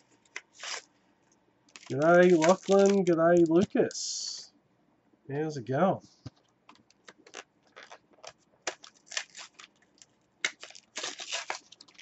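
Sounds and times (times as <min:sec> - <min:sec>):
plastic and cardboard packaging crackling: 0:00.0 - 0:00.9, 0:01.7 - 0:03.9, 0:06.7 - 0:12.0.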